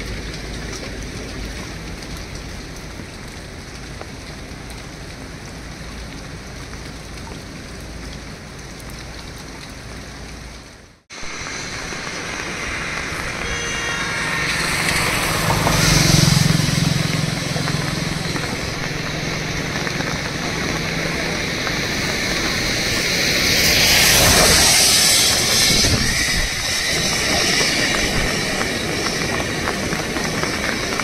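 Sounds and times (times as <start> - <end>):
engine hum: 0.0 - 31.0
heavy rain hissing: 0.0 - 31.0
rushing river: 11.1 - 26.0.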